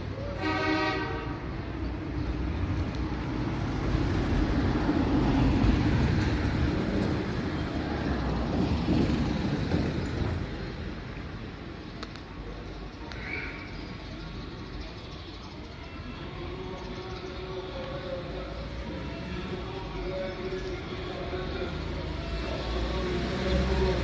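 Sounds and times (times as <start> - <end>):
horn blast: 0.3 - 1.5
heavy vehicle rumbling past: 1.0 - 11.8, 20.9 - 24.0.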